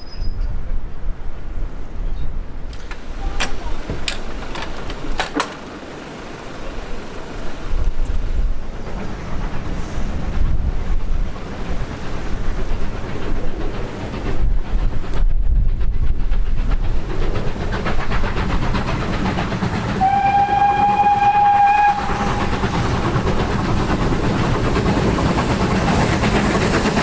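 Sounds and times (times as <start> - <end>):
steam locomotive approaching: 0.0 - 27.0
wind buffeting microphone: 7.5 - 27.0.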